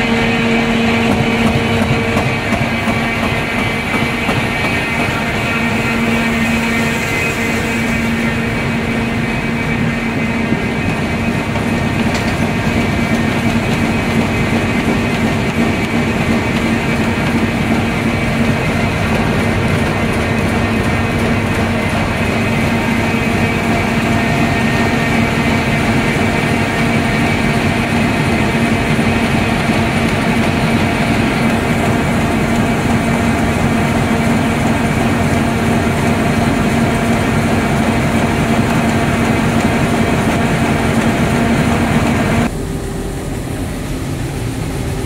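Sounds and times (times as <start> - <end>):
machine hum: 0.0 - 45.0
machine clatter: 10.0 - 42.5.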